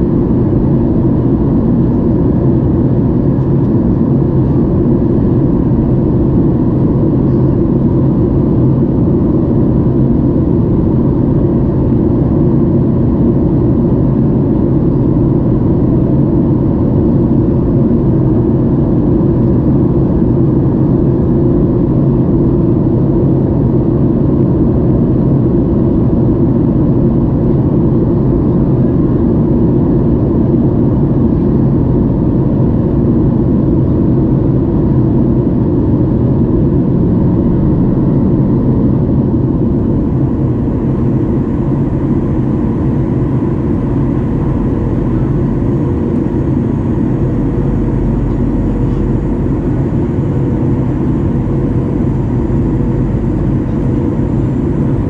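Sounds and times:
airflow rushing in cabin: 0:00.0 - 0:55.0
jet engines droning: 0:00.0 - 0:55.0
faint steady tones: 0:39.4 - 0:55.0.

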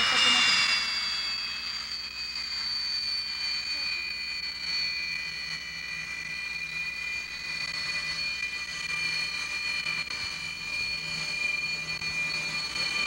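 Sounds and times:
jet engines whining: 0:00.0 - 0:13.0.

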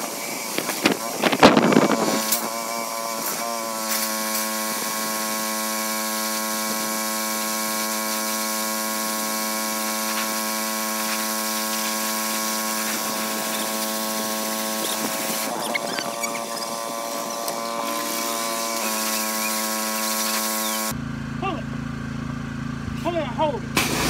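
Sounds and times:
pressure washer hum: 0:00.0 - 0:24.0
water jet hissing on hull: 0:03.9 - 0:20.9.

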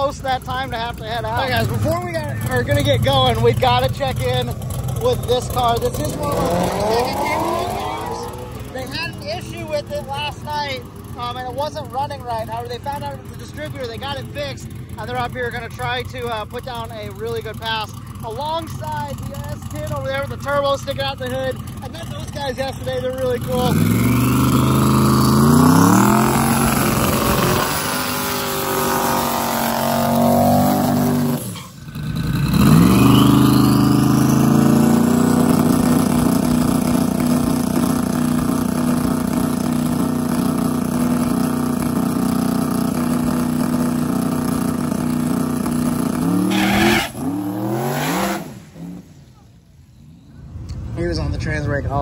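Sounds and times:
drag car engine revving: 0:00.0 - 0:49.7.

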